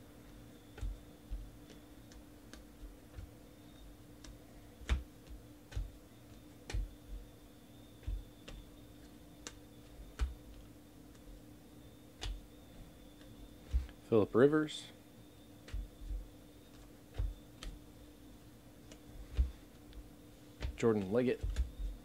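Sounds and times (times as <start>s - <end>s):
faint steady hum: 0.0s - 22.0s
trading cards clicking and tapping: 0.2s - 7.4s, 8.0s - 11.4s, 12.2s - 12.5s, 15.6s - 17.8s, 18.8s - 22.0s.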